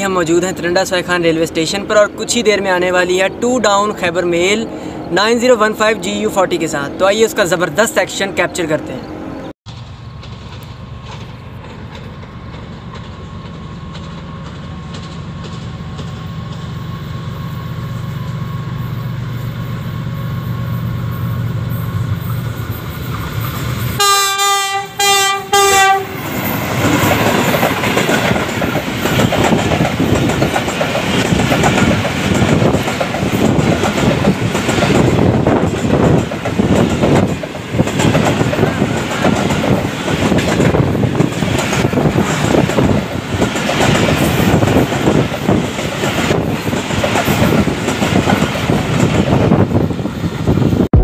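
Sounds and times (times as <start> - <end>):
diesel locomotive engine rumble: 0.0 - 51.0
train wheels clickety-clack: 9.7 - 16.9, 25.8 - 50.9
train horn: 24.0 - 26.4.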